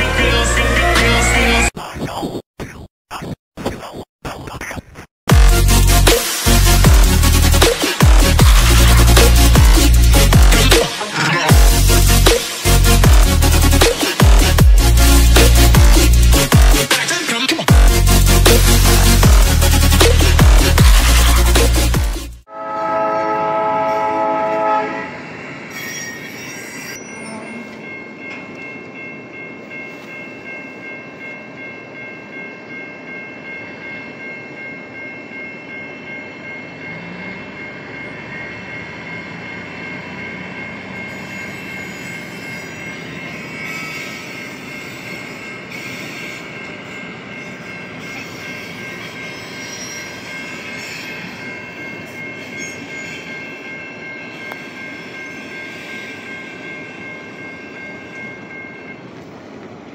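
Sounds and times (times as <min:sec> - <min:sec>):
crossing bell ringing: 0:05.4 - 0:59.9
locomotive moving slowly: 0:22.9 - 0:59.9.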